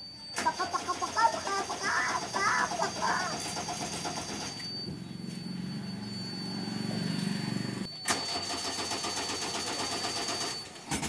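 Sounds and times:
high-pitched tone: 0.0s - 8.1s
diesel engine running: 0.3s - 11.0s.

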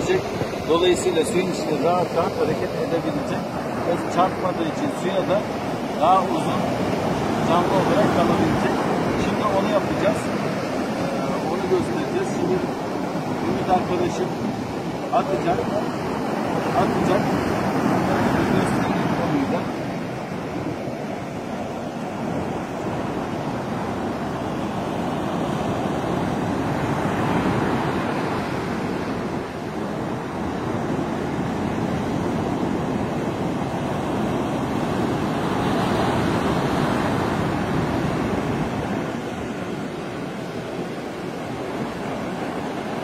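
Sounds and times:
surf breaking on beach: 0.0s - 43.0s.

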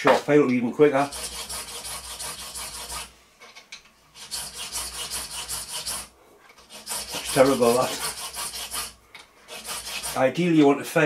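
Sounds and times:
file rasping on brass: 1.0s - 3.1s, 4.1s - 10.3s.

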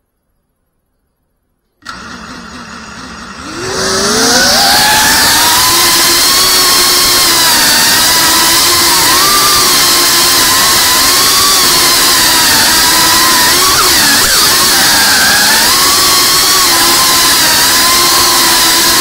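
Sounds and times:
drone motors whining: 1.8s - 19.0s.

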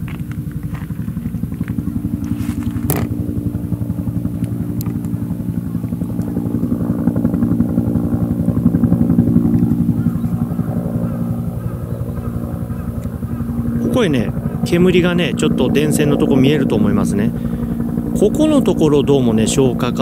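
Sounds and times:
helicopter rotor drone: 0.0s - 20.0s.

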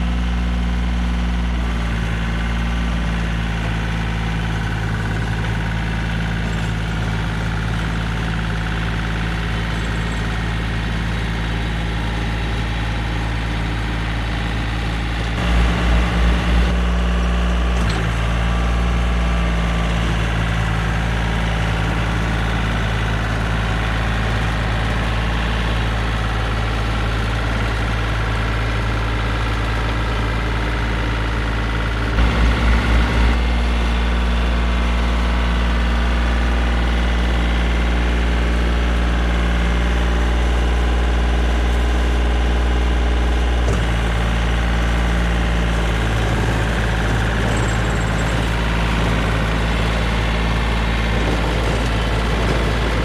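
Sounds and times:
tractor diesel engine running: 0.0s - 53.0s
short low pulses: 15.3s - 20.2s, 31.9s - 35.3s.

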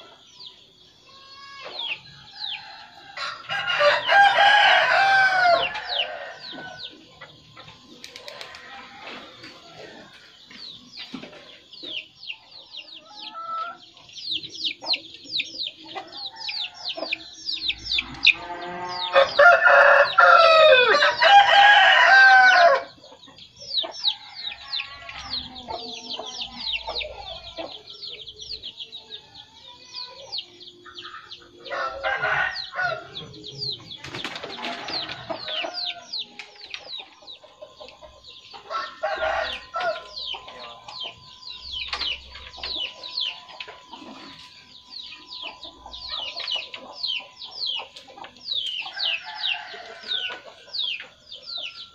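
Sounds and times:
small birds chirping: 0.0s - 22.0s, 22.8s - 51.9s
chicken calls: 0.0s - 51.9s
rooster crowing: 1.6s - 6.9s, 16.1s - 23.0s, 31.0s - 33.2s, 38.7s - 41.8s, 48.9s - 50.9s.

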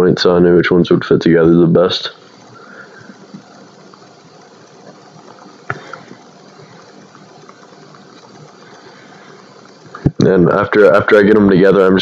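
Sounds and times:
machine hum and hiss: 0.0s - 12.0s.

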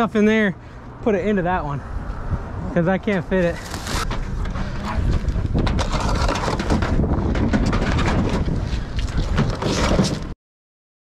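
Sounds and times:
wind buffeting microphone: 1.4s - 9.6s
housewares knocking and rattling: 5.6s - 8.6s.

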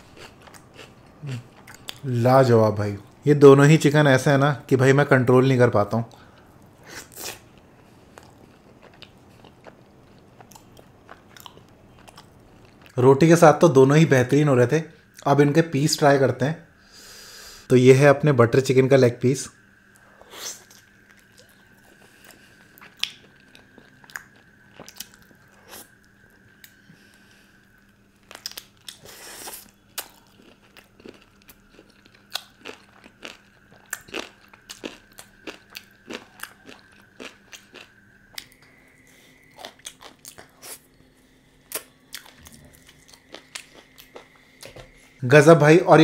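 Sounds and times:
faint steady hum: 0.0s - 46.0s
man chewing with wet smacks: 0.1s - 2.1s, 6.1s - 13.0s, 20.6s - 26.8s, 28.3s - 41.0s, 41.6s - 45.2s.

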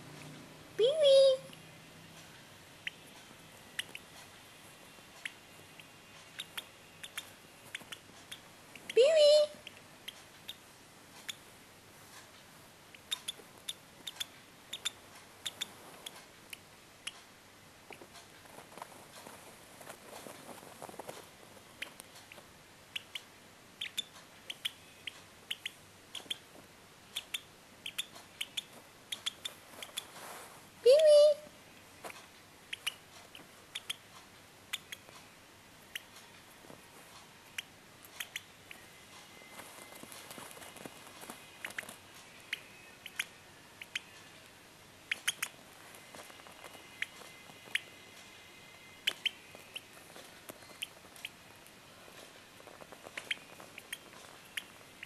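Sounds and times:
bird chick peeping: 2.8s - 4.2s, 5.2s - 11.5s, 12.9s - 17.2s, 21.7s - 30.2s, 32.0s - 35.1s, 35.8s - 36.4s, 37.4s - 51.5s, 52.6s - 55.0s.

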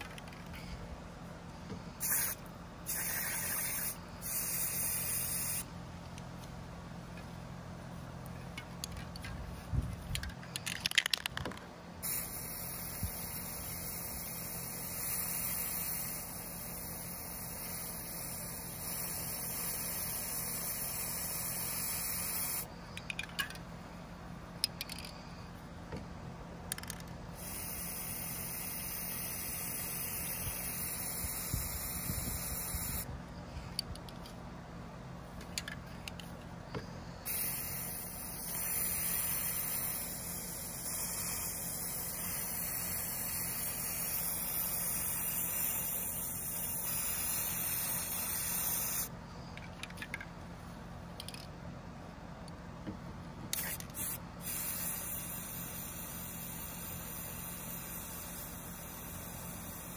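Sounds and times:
spray paint can hissing: 2.0s - 5.7s, 12.0s - 23.6s, 26.7s - 33.1s, 37.2s - 49.2s, 53.5s - 59.9s
small clicks and knocks: 10.0s - 11.7s.

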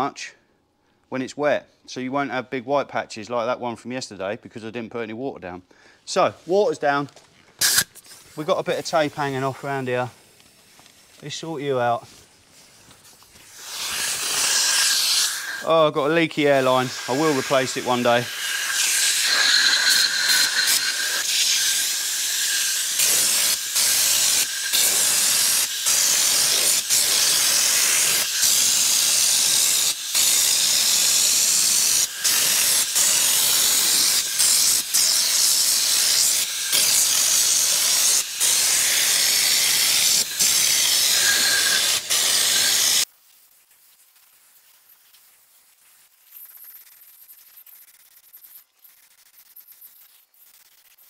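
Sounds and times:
spray gun air hissing: 7.6s - 11.2s, 13.3s - 43.1s.

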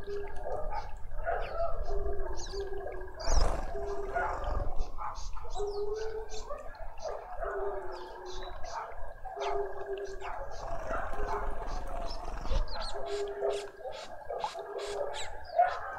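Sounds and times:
fountain trickling and bubbling: 0.0s - 4.9s, 5.7s - 15.1s
birds chirping and calling: 0.0s - 15.9s.

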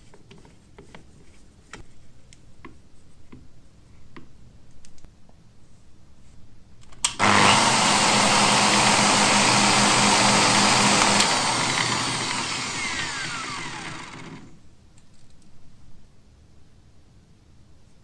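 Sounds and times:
angle grinder whirring: 7.1s - 14.6s.

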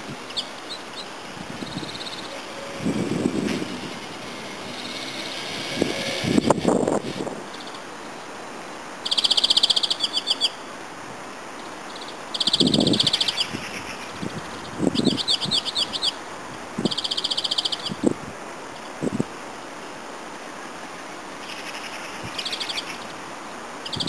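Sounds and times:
songbird trilling: 0.3s - 5.4s, 9.1s - 10.6s, 12.4s - 13.9s, 14.9s - 16.2s, 16.8s - 18.0s.

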